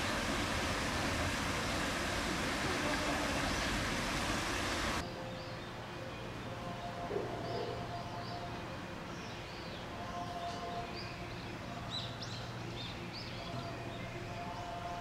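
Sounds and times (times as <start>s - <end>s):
small birds chirping: 2.9s - 5.6s.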